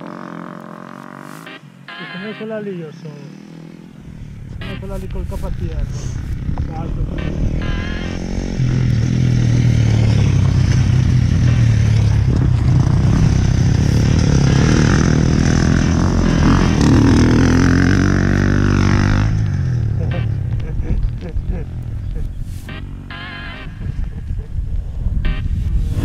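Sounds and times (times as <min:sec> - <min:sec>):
motocross bike revving past: 0:00.0 - 0:01.6, 0:03.2 - 0:20.4.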